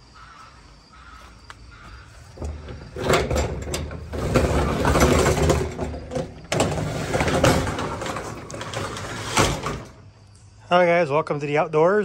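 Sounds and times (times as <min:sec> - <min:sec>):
shed door rattling open: 0:02.3 - 0:10.1.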